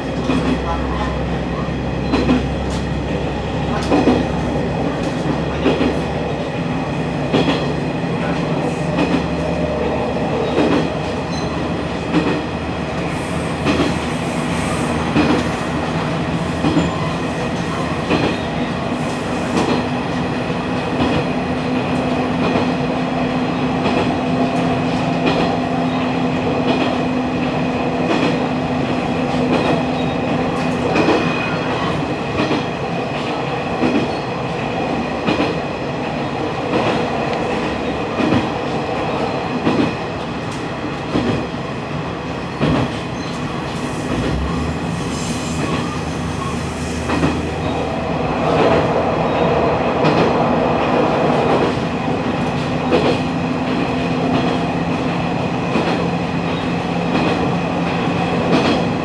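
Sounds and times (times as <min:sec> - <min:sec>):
train wheels clacking over rail joints: 0:02.0 - 0:02.9, 0:07.2 - 0:09.6, 0:10.3 - 0:15.9, 0:16.5 - 0:17.2, 0:28.0 - 0:34.2, 0:42.5 - 0:44.8, 0:46.9 - 0:47.8, 0:51.3 - 0:59.0.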